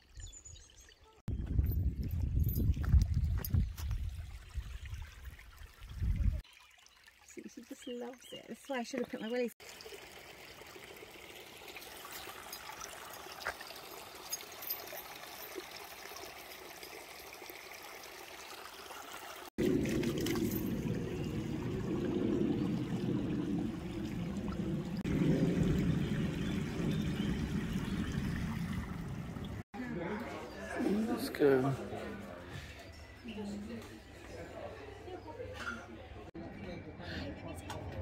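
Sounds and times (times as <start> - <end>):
stream trickling over stones: 0.0 - 29.6.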